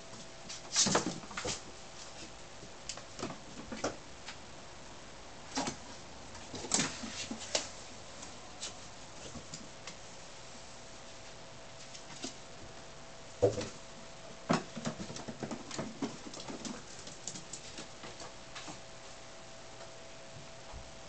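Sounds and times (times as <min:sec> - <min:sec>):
faint steady hum: 0:00.0 - 0:21.0
kittens scampering on cardboard: 0:00.1 - 0:04.4, 0:05.5 - 0:10.0, 0:14.5 - 0:18.8.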